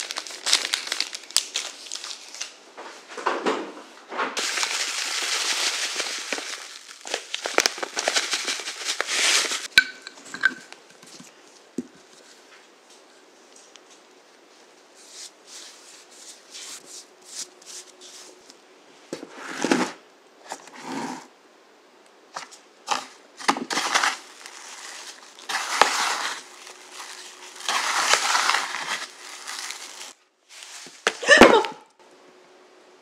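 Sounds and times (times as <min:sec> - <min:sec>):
sugar granules crunching and scraping: 0:04.4 - 0:09.7, 0:23.7 - 0:30.9.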